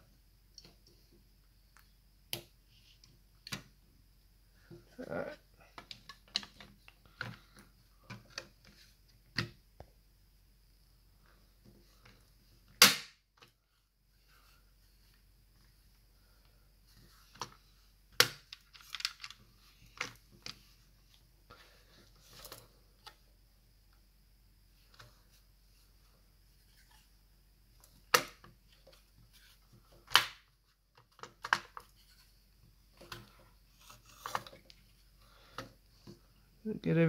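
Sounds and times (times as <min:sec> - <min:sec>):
plastic parts clicking and tapping: 0:05.7 - 0:09.9, 0:17.3 - 0:20.6, 0:29.9 - 0:32.0.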